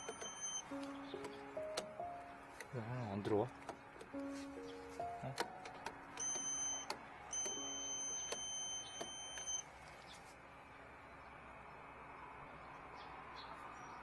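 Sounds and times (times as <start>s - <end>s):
voltage tester beeping: 0.0s - 0.7s, 6.2s - 9.7s.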